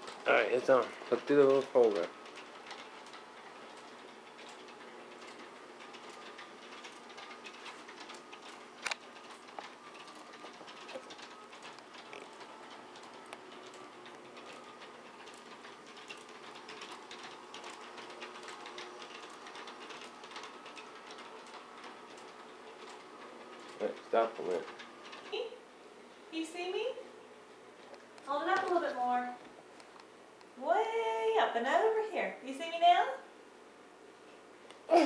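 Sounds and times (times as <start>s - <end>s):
wheel clicks on track: 0.0s - 25.6s.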